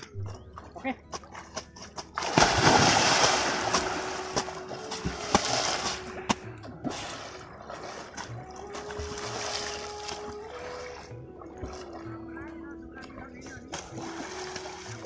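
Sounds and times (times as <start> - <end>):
water splashing and churning: 0.0 - 15.0
sharp water slaps: 1.4 - 10.6.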